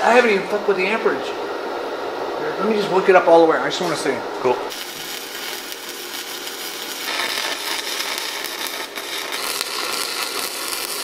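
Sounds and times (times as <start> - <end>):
welding arc crackling and hissing: 4.7 - 11.0.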